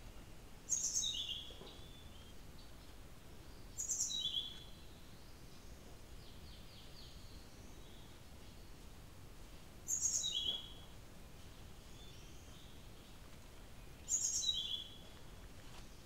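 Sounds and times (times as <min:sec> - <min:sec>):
bird singing whistled notes: 0:00.2 - 0:02.7, 0:03.7 - 0:05.3, 0:09.9 - 0:10.8, 0:13.8 - 0:15.0.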